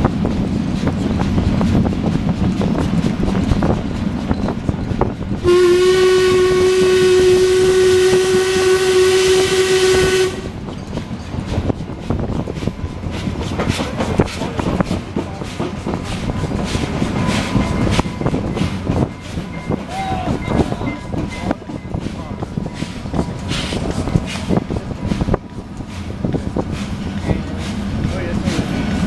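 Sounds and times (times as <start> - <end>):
train rattling over rails: 0.0 - 29.0
steam locomotive whistle: 5.4 - 10.6
hiss of steam: 22.0 - 29.0.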